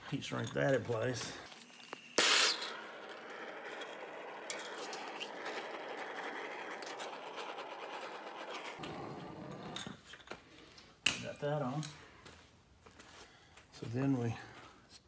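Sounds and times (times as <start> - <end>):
heat gun blowing air: 1.9 - 2.8.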